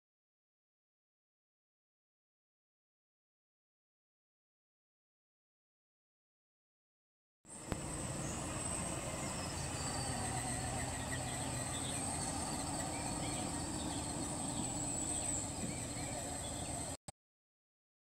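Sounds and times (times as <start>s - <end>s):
insects buzzing: 7.5s - 17.0s
low steady hum: 7.5s - 17.0s.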